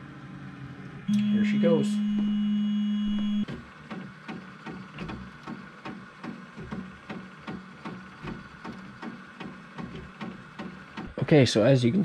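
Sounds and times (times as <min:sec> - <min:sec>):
stepper motors clicking and buzzing: 0:02.0 - 0:11.1.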